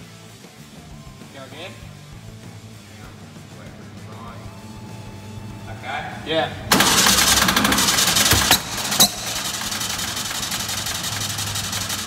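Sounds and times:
car engine running: 1.8 - 12.0
engine backfire cracks: 6.7 - 12.0.

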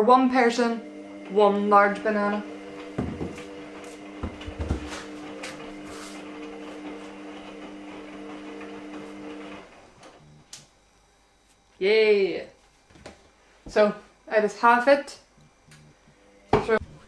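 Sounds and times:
electrical hum: 0.0 - 17.0
knocks and taps on counter: 3.0 - 3.4.

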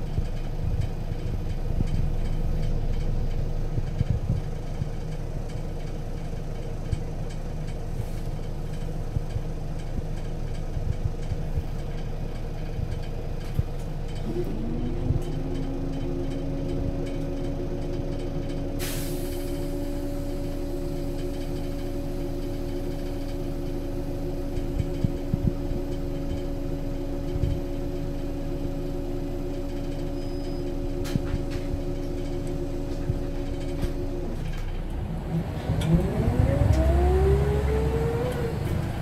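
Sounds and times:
bus engine running: 0.0 - 39.0
gearbox whine: 14.1 - 39.0.

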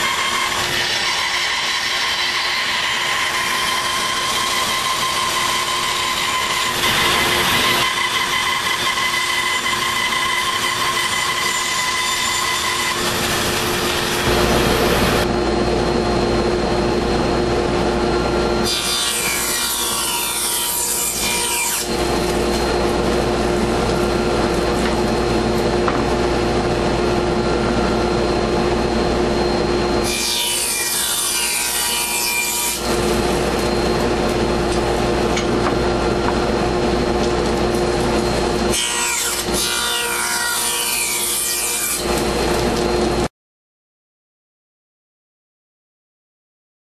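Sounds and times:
bandsaw cutting wood: 0.0 - 15.2, 18.6 - 25.2, 30.0 - 35.4
radial arm saw cutting board: 0.0 - 15.4, 16.0 - 43.3.

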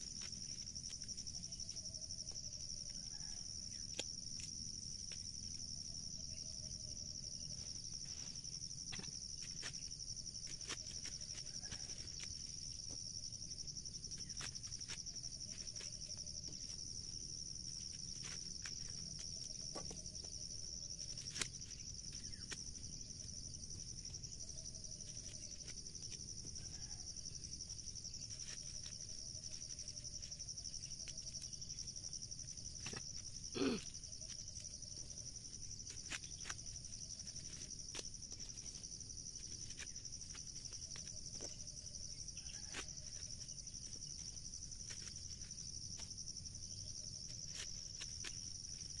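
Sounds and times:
insect chorus droning: 0.0 - 49.0.

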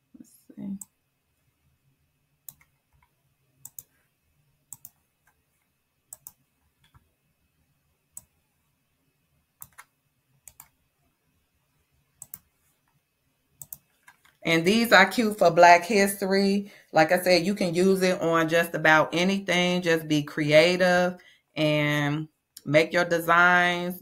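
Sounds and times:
computer mouse clicking: 2.4 - 4.0, 4.7 - 5.4, 6.1 - 7.1, 9.6 - 10.8, 12.2 - 13.0, 13.6 - 14.4.

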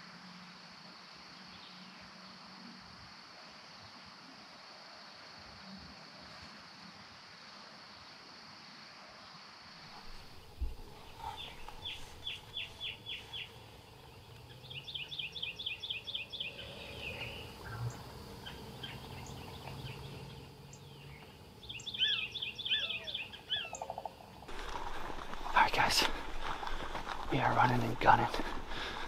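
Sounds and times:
songbirds singing: 9.9 - 29.0.

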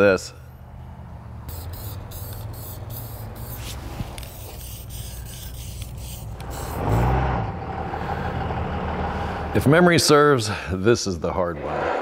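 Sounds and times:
aerosol can spraying: 1.5 - 7.2.

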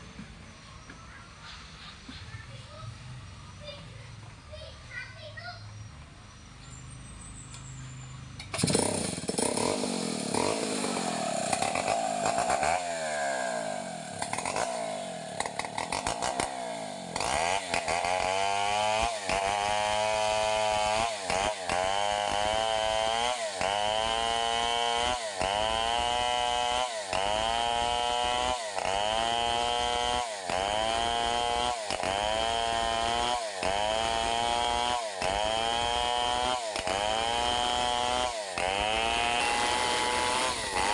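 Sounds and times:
chainsaw cutting log: 8.4 - 40.9
chainsaw running: 8.4 - 40.9.

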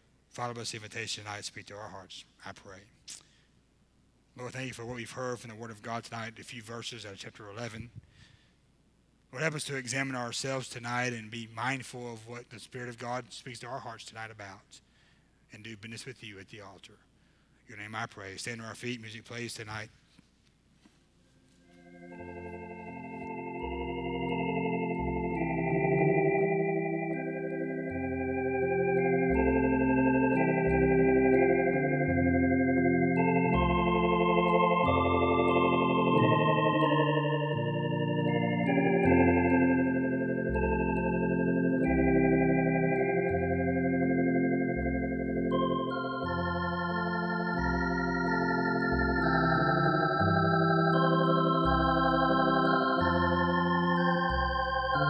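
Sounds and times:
organ playing a hymn: 21.4 - 55.0.

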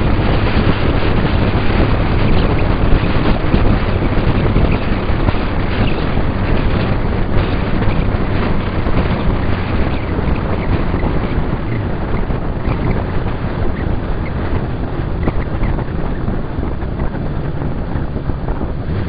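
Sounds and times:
motorcycle engine droning: 0.0 - 19.0
wind rushing over microphone: 0.0 - 19.0.

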